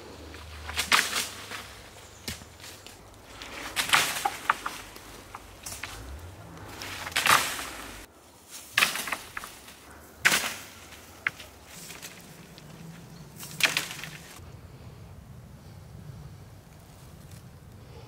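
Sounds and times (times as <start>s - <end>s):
stick beating leafy branches: 0.0s - 14.4s.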